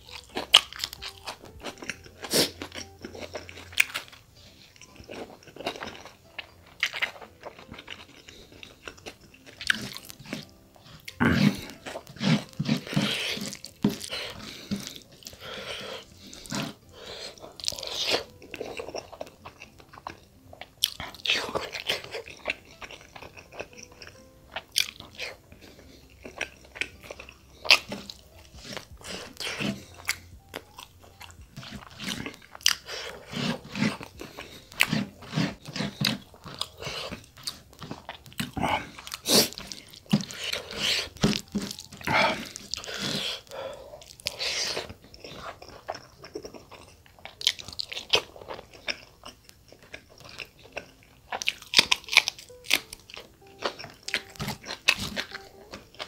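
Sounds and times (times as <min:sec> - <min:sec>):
wet chewing and smacking: 0:00.0 - 0:56.0.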